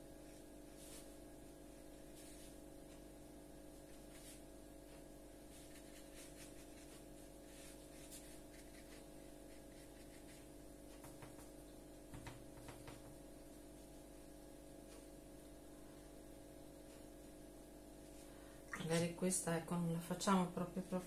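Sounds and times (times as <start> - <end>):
electrical hum: 0.0 - 21.0
brush scratching on paper: 0.3 - 1.2, 2.0 - 3.0, 3.8 - 11.1.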